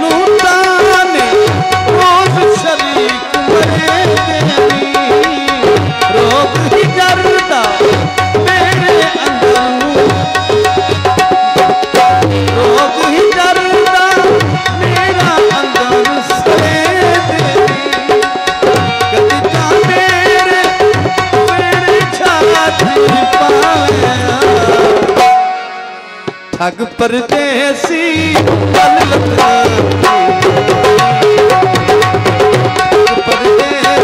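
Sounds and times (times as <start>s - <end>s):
fast hand drum rhythm: 0.0s - 25.4s, 27.3s - 34.0s.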